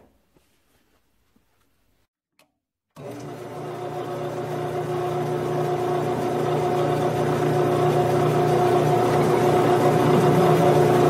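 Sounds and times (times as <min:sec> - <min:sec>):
lathe motor hum and whine: 0:03.0 - 0:11.0.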